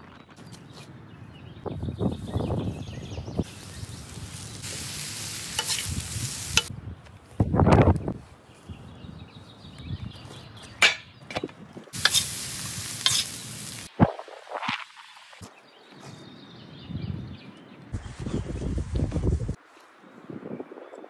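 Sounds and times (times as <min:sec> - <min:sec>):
food sizzling in a hot pan: 0:03.4 - 0:06.7, 0:12.0 - 0:13.9
food preparation scraping: 0:05.5 - 0:06.0, 0:12.0 - 0:12.4, 0:13.0 - 0:13.4.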